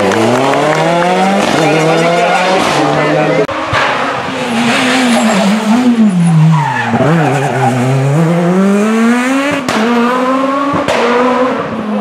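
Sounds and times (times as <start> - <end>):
rally car engine revving: 0.0 - 12.0.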